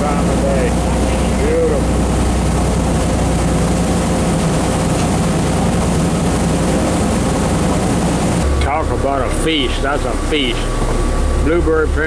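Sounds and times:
hiss of wind and water: 0.0s - 8.5s
boat machinery droning: 0.0s - 12.0s.

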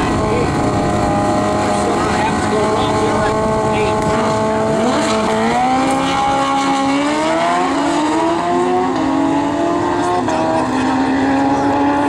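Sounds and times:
motorcycle engines revving: 0.0s - 12.0s.

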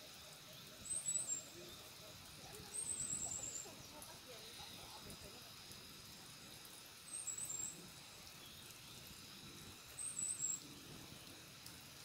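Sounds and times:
small bird chirping: 0.0s - 5.2s, 7.1s - 11.5s
faint outdoor background: 0.0s - 12.0s.

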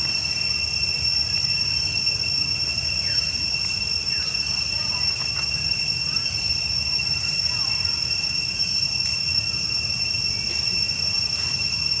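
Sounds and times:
shrill insect drone: 0.0s - 12.0s.

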